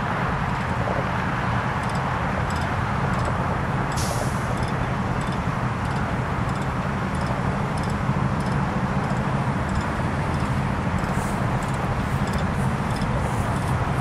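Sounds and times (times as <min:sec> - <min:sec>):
faint high ticks: 0:01.8 - 0:13.8
large engine idling: 0:03.2 - 0:14.0.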